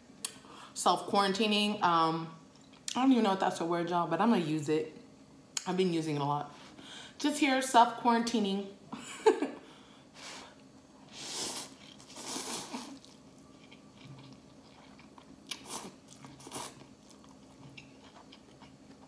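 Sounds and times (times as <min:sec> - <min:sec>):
slurping noodles: 0:11.1 - 0:13.2
chewing with wet mouth clicks: 0:12.9 - 0:19.0.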